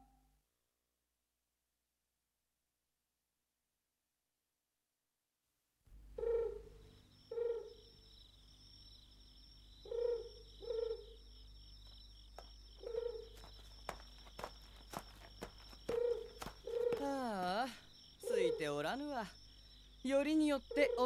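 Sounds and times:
faint hum: 5.9 - 21.0
owl hooting: 6.2 - 7.9, 9.8 - 11.2, 12.8 - 13.5, 15.8 - 17.5, 18.2 - 19.0, 20.6 - 21.0
high insect trill: 6.2 - 21.0.

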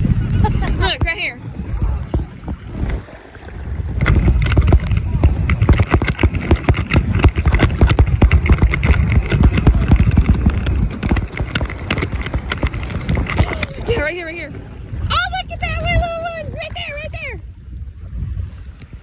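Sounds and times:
footsteps splashing in shallow water: 0.0 - 15.0
wind on microphone: 0.0 - 19.0.

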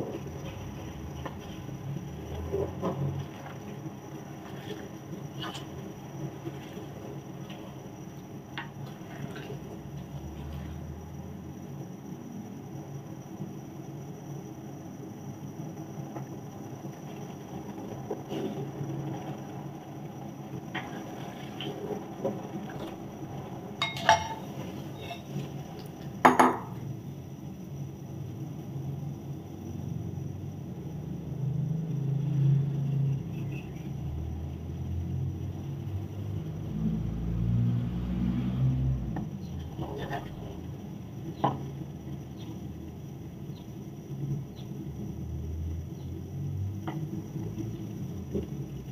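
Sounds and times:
spatula knocking metal wok: 23.8 - 25.2.

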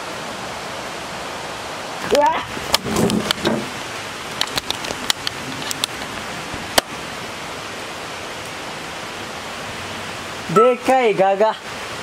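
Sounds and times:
camera handling clicks and knocks: 4.4 - 6.1.

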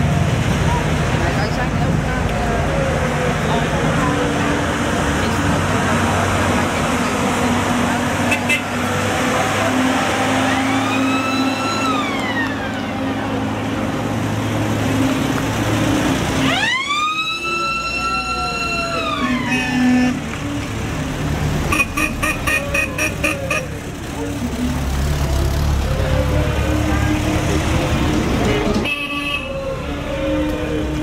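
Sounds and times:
trucks running low: 0.0 - 31.0
mechanical siren wailing: 10.4 - 13.2, 16.4 - 19.8.

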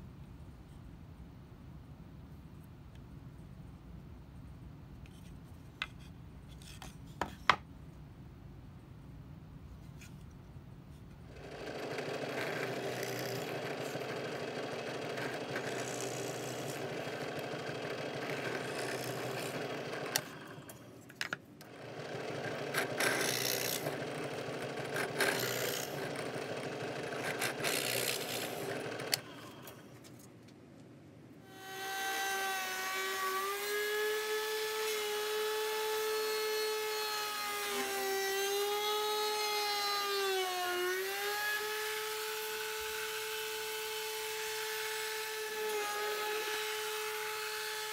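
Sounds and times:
power tool cutting wood: 11.3 - 20.9, 21.6 - 29.9, 31.4 - 47.9
router motor whine: 11.3 - 21.0, 21.6 - 30.0, 31.4 - 47.9.

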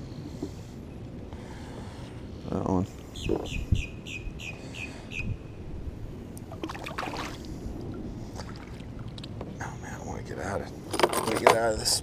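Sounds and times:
bird chirping: 3.2 - 5.6
kayak and water shifting: 6.4 - 9.6.

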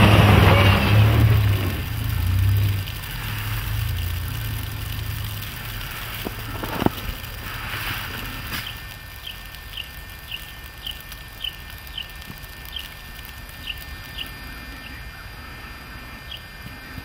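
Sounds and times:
car engine rumbling: 0.0 - 11.1.

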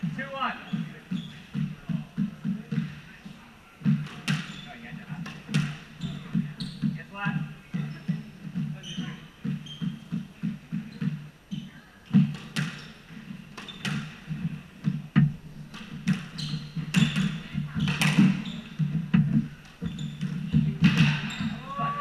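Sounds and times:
footsteps on wooden floor: 12.1 - 22.0
squash ball cracks off racquet and walls: 13.5 - 21.6.

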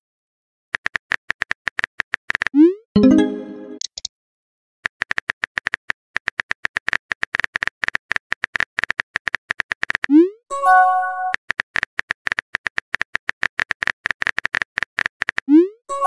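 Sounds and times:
message received chime: 3.0 - 3.8
short message sent chime: 3.0 - 3.8.

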